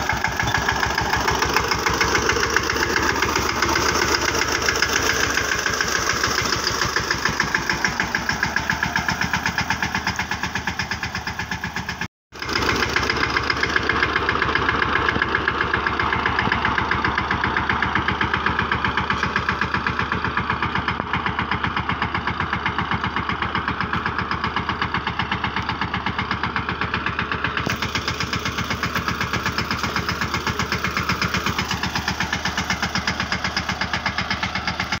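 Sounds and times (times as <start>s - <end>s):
tractor diesel engine running: 0.0s - 35.0s.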